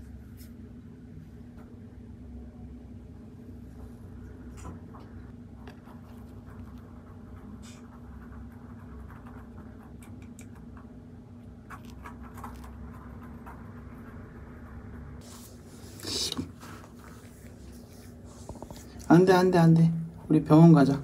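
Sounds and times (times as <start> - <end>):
steady low hum: 0.0 - 21.0
litter granules scratching and clicking: 11.6 - 14.3.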